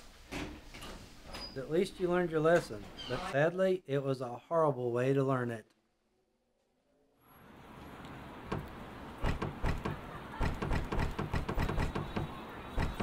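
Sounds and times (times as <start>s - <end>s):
door rattling and clattering: 8.5s - 13.0s.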